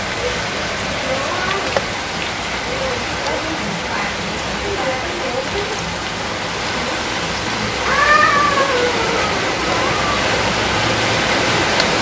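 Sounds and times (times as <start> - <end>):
cat meowing: 7.8 - 10.5.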